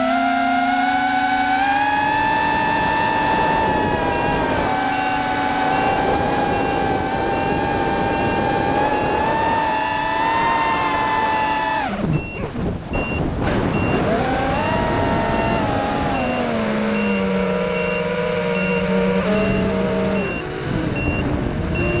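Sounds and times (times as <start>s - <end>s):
drone motors whining: 0.0s - 22.0s
short high beep: 4.1s - 9.3s, 16.2s - 20.4s, 21.8s - 22.0s.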